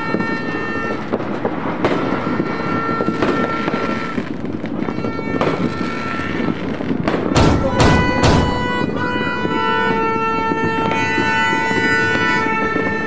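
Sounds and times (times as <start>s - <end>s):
fireworks bursting: 0.0s - 13.0s
loud firework bangs: 0.0s - 13.0s.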